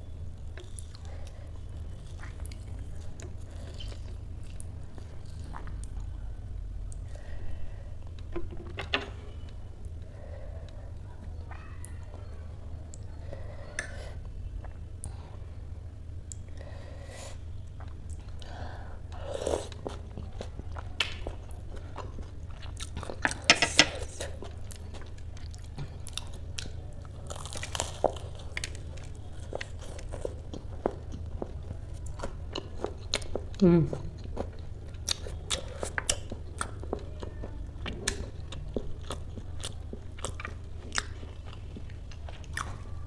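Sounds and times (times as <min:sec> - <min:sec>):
steady low hum: 0:00.0 - 0:43.0
person chewing and crunching: 0:19.1 - 0:43.0.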